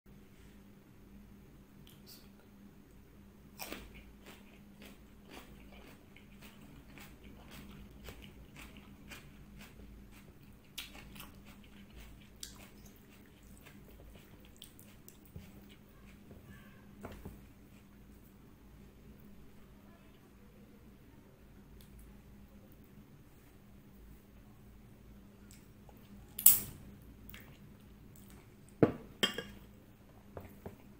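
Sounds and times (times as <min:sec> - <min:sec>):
crunching cucumber bites: 0:03.6 - 0:16.3.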